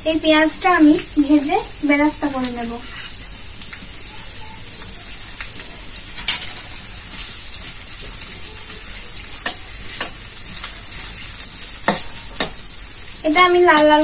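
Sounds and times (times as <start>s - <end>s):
onions sizzling in hot oil: 0.0s - 14.0s
metal spatula knocking on pan: 11.8s - 12.6s.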